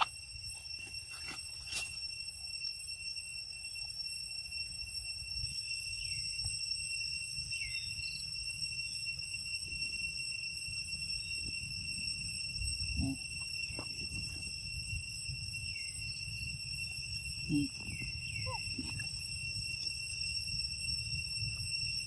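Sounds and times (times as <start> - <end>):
insects trilling: 0.0 - 22.0
brief low calls: 17.4 - 19.1.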